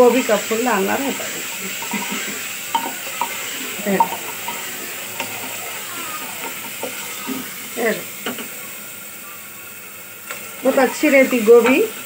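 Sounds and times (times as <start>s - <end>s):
curry sizzling: 0.0s - 12.0s
spatula scraping pot: 1.0s - 8.6s.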